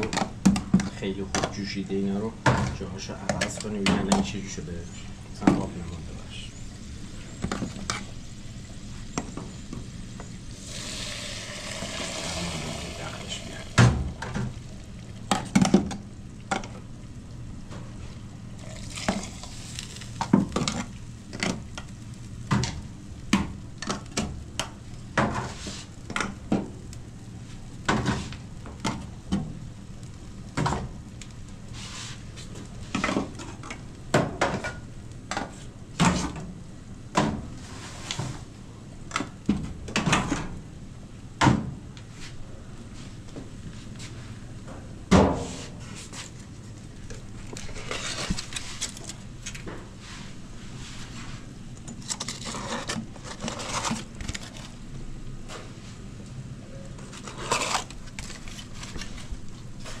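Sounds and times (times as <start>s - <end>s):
hissing noise: 4.5s - 15.0s.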